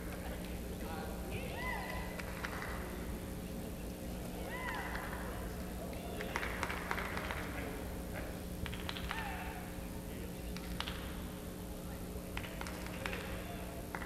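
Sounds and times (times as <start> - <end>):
arena ambience hum: 0.0 - 14.0.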